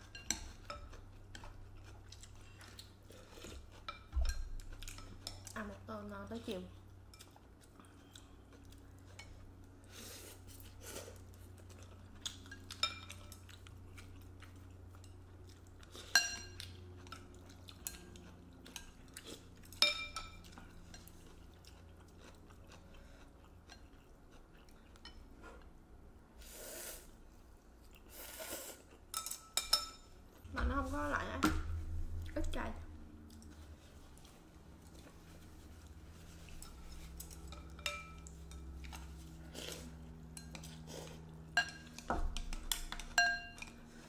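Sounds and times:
soft chewing: 0.0s - 31.2s, 31.8s - 44.0s
low steady hum: 0.0s - 44.0s
utensils clinking on ceramic bowls: 29.1s - 30.1s, 36.6s - 39.1s, 41.5s - 43.8s.

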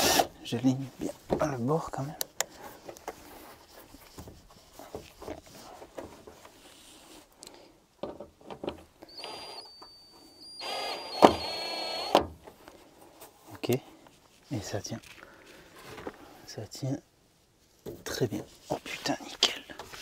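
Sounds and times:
cordless drill whirring: 0.0s - 0.3s, 9.1s - 9.7s, 10.4s - 12.2s.

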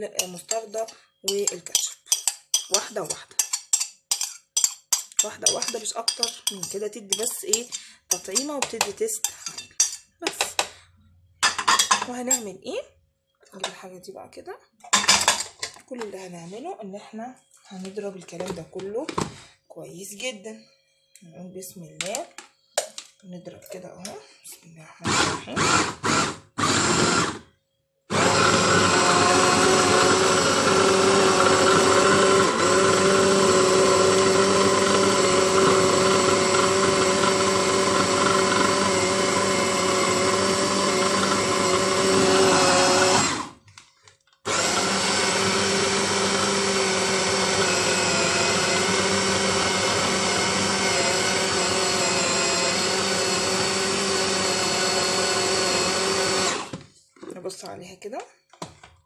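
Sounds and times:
electric food chopper motor: 25.0s - 27.4s, 28.1s - 43.6s, 44.5s - 56.8s.

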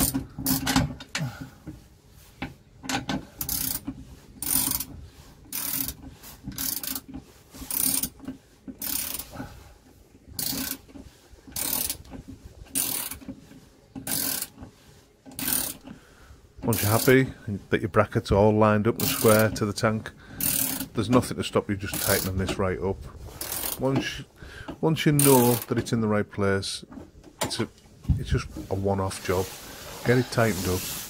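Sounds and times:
socket ratchet clicking: 5.5s - 6.0s.

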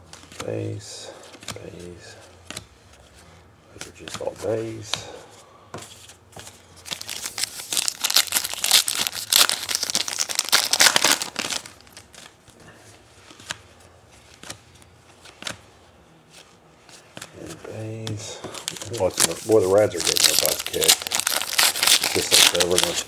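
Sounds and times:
foil wrapper crackling: 6.9s - 12.1s, 18.6s - 23.0s.

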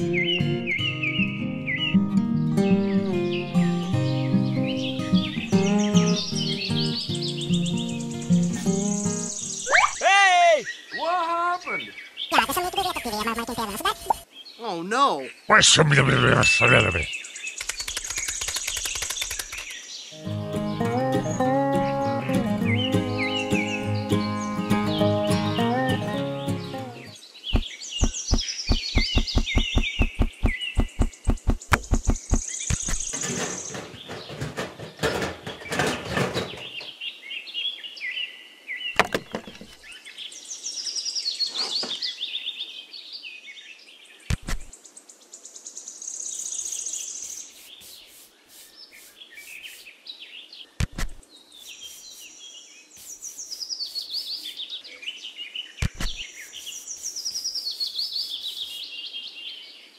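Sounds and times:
birds chirping: 0.0s - 37.9s, 46.1s - 59.7s
sharp taps: 27.5s - 34.4s.

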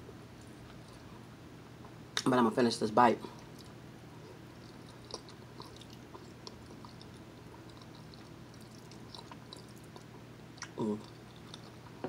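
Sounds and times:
person chewing food: 0.4s - 1.2s, 3.3s - 12.0s.

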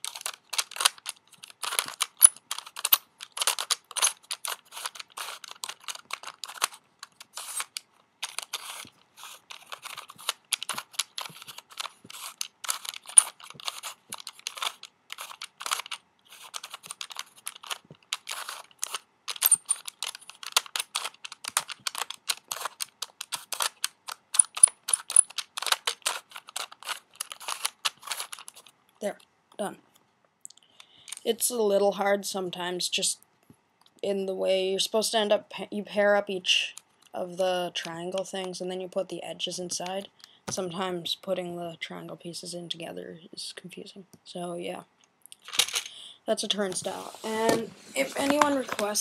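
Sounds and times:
plastic puzzle pieces clicking: 0.0s - 28.7s, 45.4s - 45.9s.

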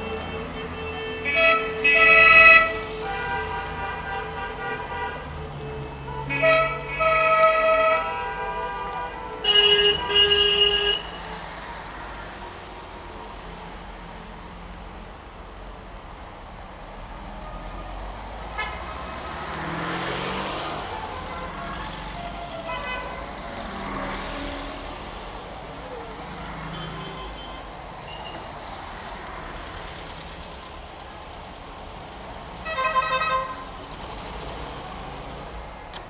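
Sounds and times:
car horn tooting: 0.0s - 11.3s, 18.5s - 18.9s, 22.2s - 23.4s, 26.7s - 28.5s, 32.6s - 33.7s
cars driving slowly past: 1.3s - 36.0s.

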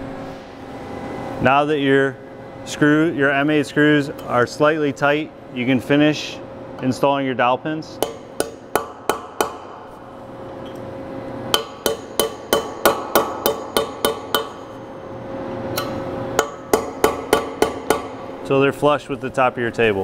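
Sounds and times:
hammer tapping metal pins: 11.5s - 14.6s, 15.7s - 18.2s.

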